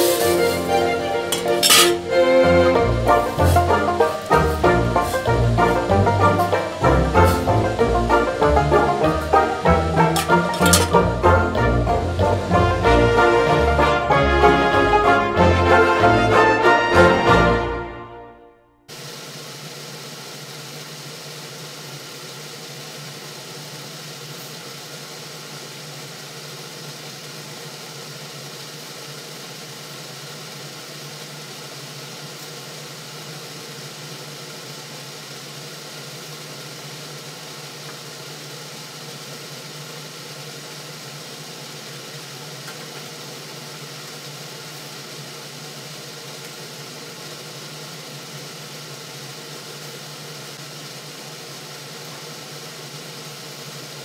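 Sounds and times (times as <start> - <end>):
even hiss: 0.0 - 14.1.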